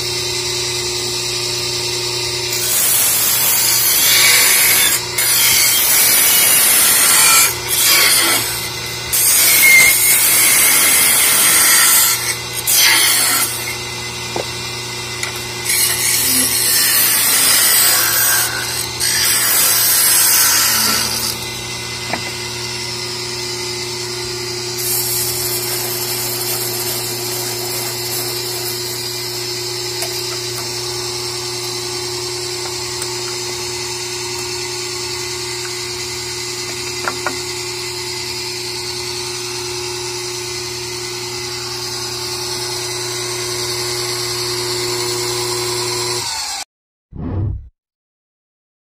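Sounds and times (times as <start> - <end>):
lathe motor hum: 21.0 - 46.6
turning tool scraping wood: 24.8 - 29.1.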